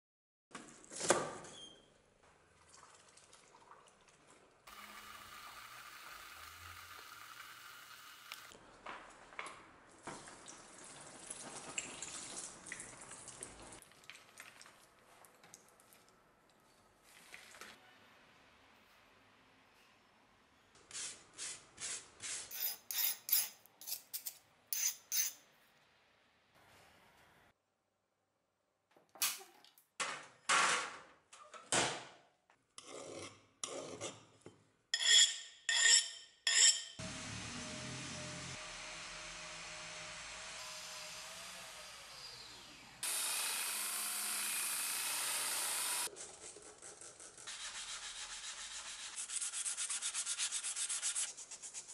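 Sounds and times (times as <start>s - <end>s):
angle grinder whining: 4.7s - 8.6s, 37.0s - 46.1s
metal blade clattering and scraping: 22.5s - 25.4s, 35.0s - 37.0s.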